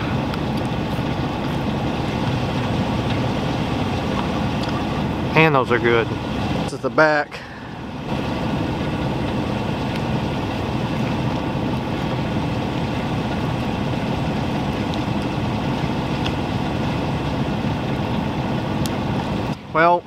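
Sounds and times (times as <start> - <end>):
vehicle engine idling hum: 0.0 - 20.0.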